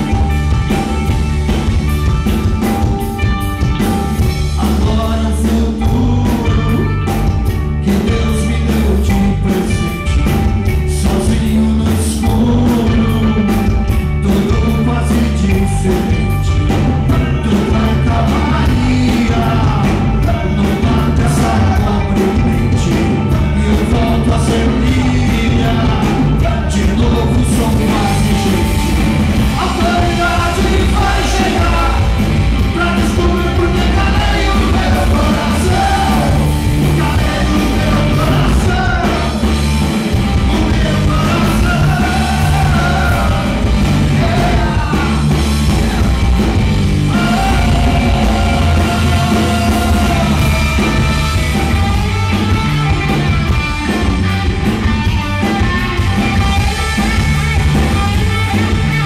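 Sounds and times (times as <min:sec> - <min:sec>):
bass guitar: 0:00.0 - 0:59.0
drum kit: 0:00.0 - 0:59.0
electric guitar: 0:00.0 - 0:59.0
man singing: 0:04.2 - 0:39.7, 0:40.3 - 0:52.0.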